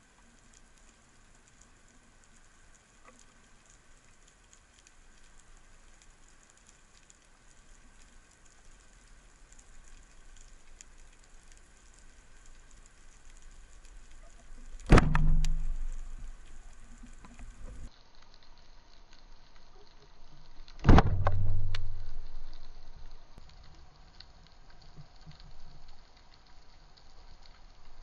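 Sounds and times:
crackling underwater background: 0.0s - 28.0s
click: 14.6s - 17.8s
speargun shot crack: 14.8s - 16.2s, 20.8s - 21.8s
short low hum: 14.9s - 17.9s.

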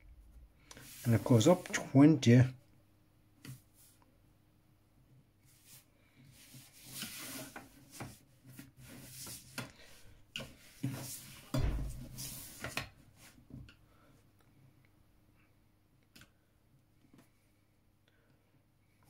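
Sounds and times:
plastic rubbing on paper: 6.4s - 9.6s.

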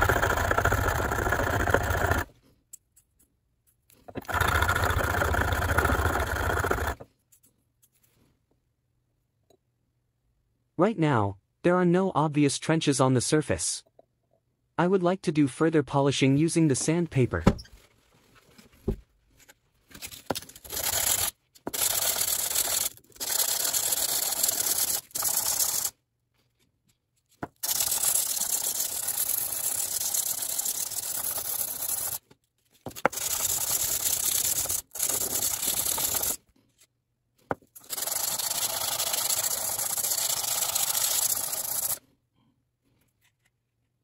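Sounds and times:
metal rubbed on sandpaper: 27.6s - 32.2s, 33.0s - 36.4s, 37.8s - 42.0s.

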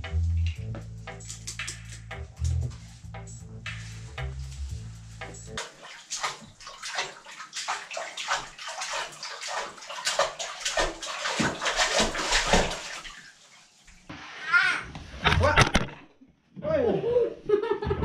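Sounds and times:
child splashing in bathwater: 5.6s - 13.6s.

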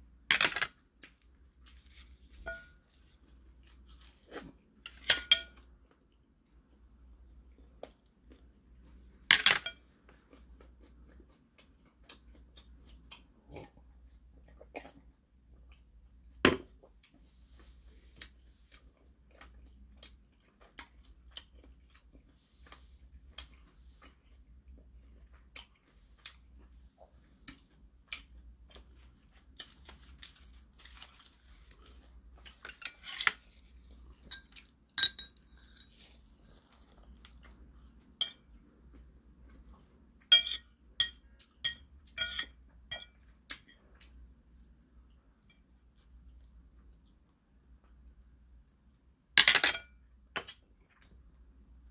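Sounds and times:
chopsticks clinking on dishes: 2.4s - 2.8s, 4.8s - 5.7s, 34.2s - 36.1s, 38.2s - 38.5s, 40.3s - 43.8s
chewing and mouth clicks: 10.1s - 15.9s, 18.2s - 30.3s.

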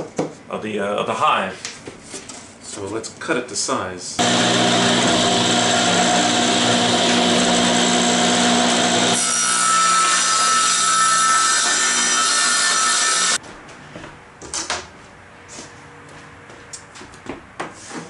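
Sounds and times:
table saw cutting wood: 4.2s - 13.4s.

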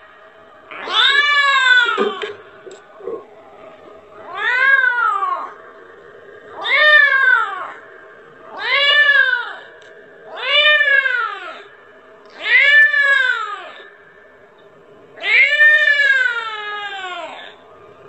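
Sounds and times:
kitten meowing: 0.7s - 2.3s.

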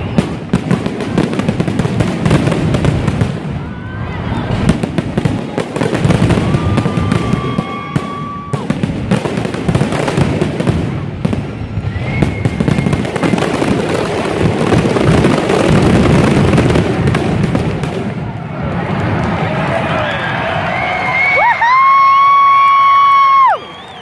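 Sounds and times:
fireworks high whistles: 0.0s - 0.8s, 9.9s - 16.4s, 23.3s - 24.0s
fireworks bursting and crackling: 0.0s - 24.0s.

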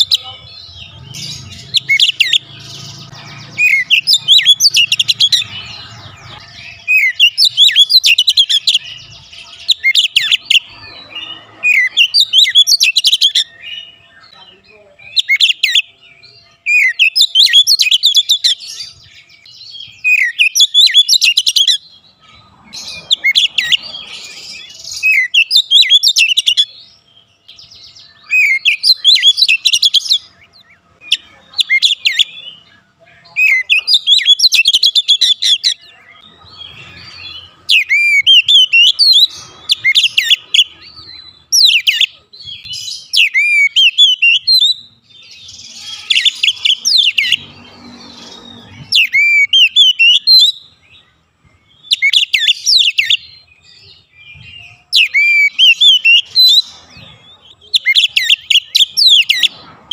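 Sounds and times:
bird singing whistles: 37.7s - 47.4s, 48.4s - 50.8s, 51.8s - 56.8s, 57.7s - 59.5s.

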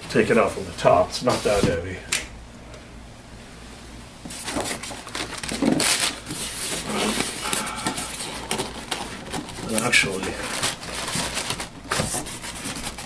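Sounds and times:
packing materials rustling and crinkling: 4.2s - 13.0s.

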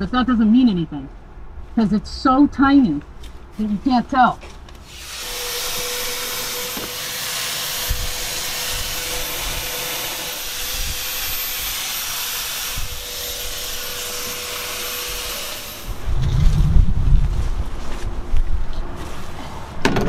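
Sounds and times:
fogging sprayer motor whining: 4.9s - 16.6s
loud low rumble: 15.9s - 17.9s.

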